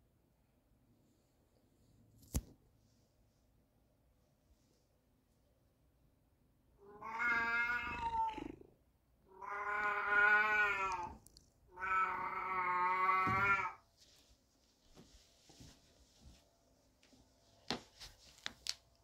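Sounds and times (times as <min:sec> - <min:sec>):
cat meowing: 0:06.8 - 0:08.7, 0:09.3 - 0:13.8.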